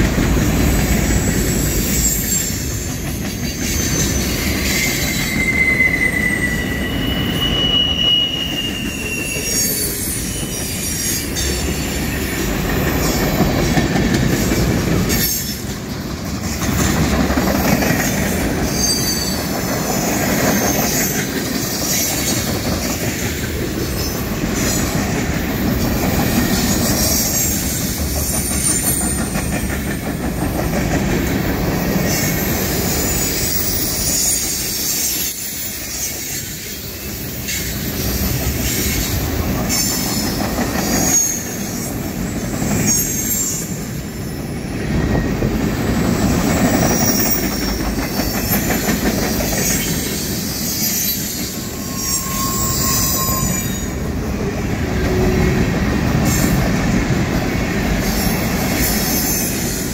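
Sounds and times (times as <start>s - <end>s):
freight train wheels rumbling: 0.0s - 59.9s
high wheel squeals: 0.5s - 13.4s, 18.6s - 25.2s, 31.6s - 54.2s.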